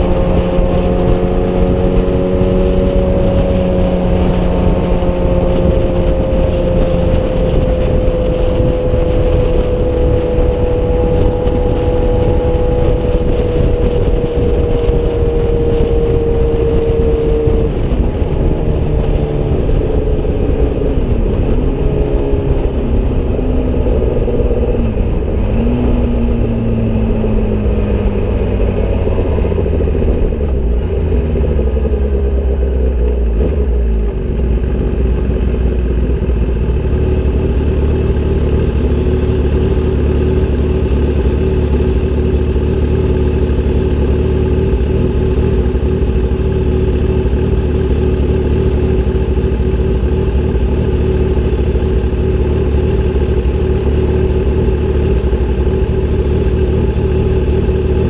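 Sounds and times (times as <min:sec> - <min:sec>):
motorcycle engine: 0:00.0 - 0:58.0.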